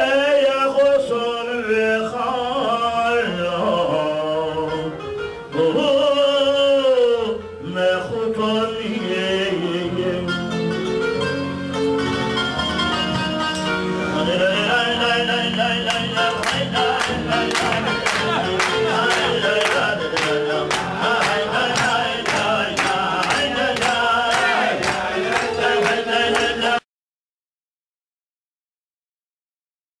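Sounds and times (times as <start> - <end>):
person singing into microphone: 0.0 - 10.8, 14.1 - 26.8
instrumental accompaniment: 3.6 - 26.8
sharp rhythmic strikes: 15.4 - 26.8.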